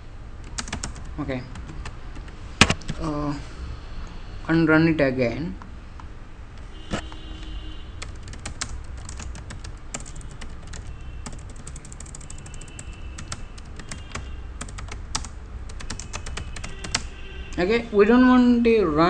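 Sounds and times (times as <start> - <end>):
keyboard typing: 0.4 - 3.1, 6.9 - 17.1.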